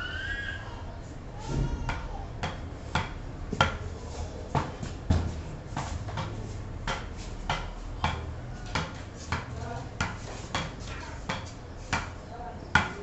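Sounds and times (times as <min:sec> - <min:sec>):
ball knocking on wooden bat: 0:01.9 - 0:03.8, 0:06.0 - 0:12.2.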